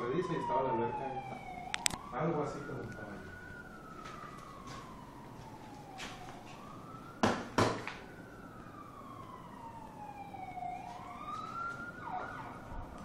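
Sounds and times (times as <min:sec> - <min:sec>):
siren wailing: 0:00.0 - 0:13.0
sharp knocks: 0:07.2 - 0:07.9.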